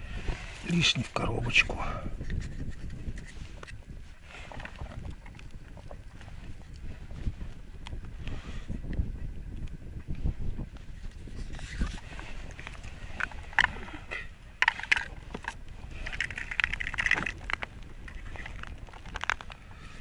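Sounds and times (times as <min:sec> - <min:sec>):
wind rumble on microphone: 0:00.0 - 0:20.0.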